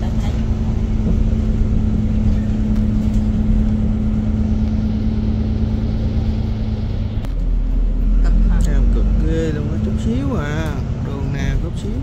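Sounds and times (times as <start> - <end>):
bus engine humming: 0.0 - 12.0
low road rumble: 0.0 - 12.0.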